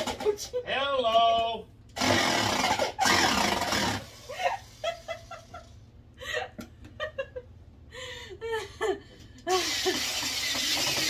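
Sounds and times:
electric drill driving screws: 2.0 - 4.8, 9.5 - 11.0
person laughing: 4.3 - 10.2.

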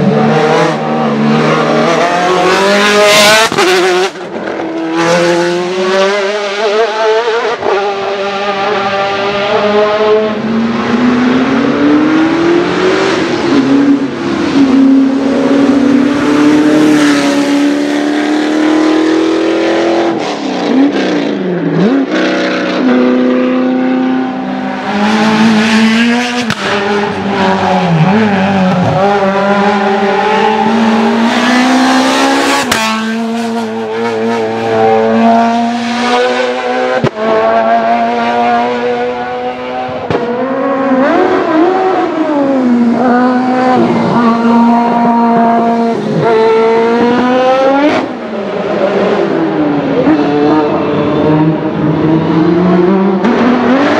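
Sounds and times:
racing car engines revving hard: 0.0 - 53.9.

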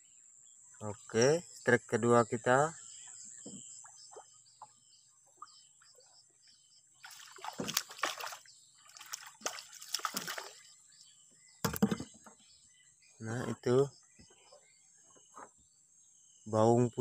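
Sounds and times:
fish thrashing and splashing: 7.0 - 10.7.

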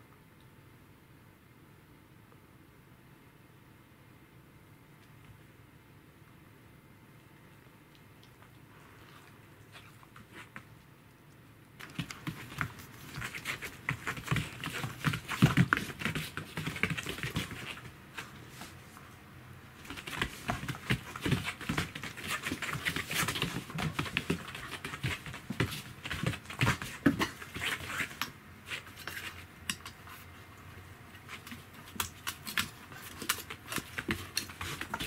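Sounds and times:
paws scuffling on wooden floor: 11.8 - 19.2, 19.8 - 30.4, 31.1 - 35.0.

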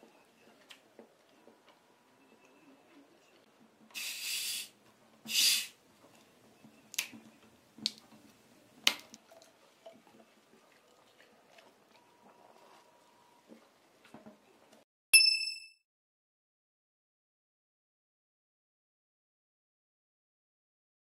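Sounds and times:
carbonation hissing from bottle: 4.0 - 4.7, 5.3 - 5.8.

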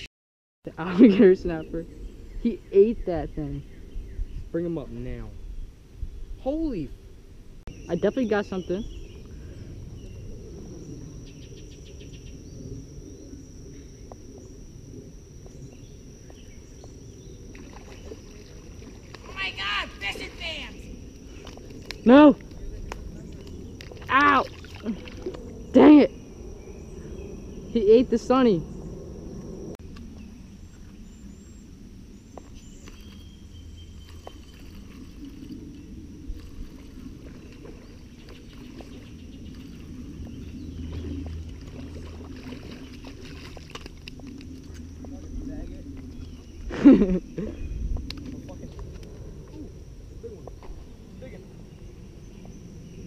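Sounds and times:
high insect drone: 0.7 - 53.0
low rumble: 8.8 - 53.0.

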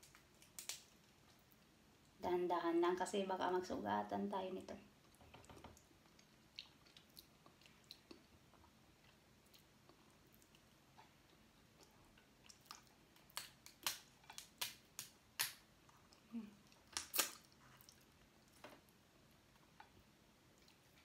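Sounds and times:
crab shell cracking: 0.0 - 0.9.

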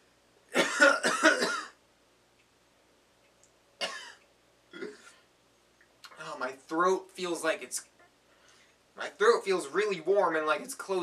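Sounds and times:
man coughing: 0.5 - 1.8, 3.8 - 4.2.

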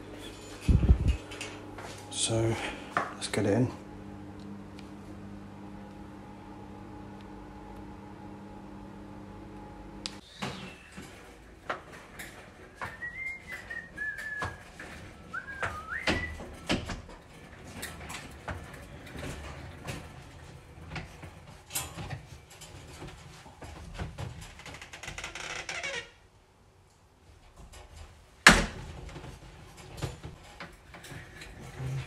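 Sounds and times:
wire crate rattling: 11.0 - 24.6.

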